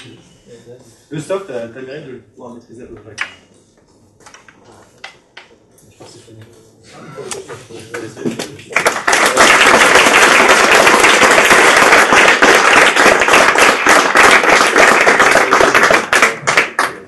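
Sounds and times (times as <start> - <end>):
audience applauding: 8.7 - 17.0.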